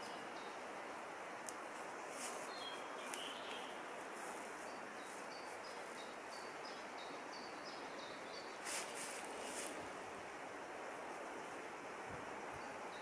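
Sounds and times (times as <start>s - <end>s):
small bird calling: 2.2s - 9.8s.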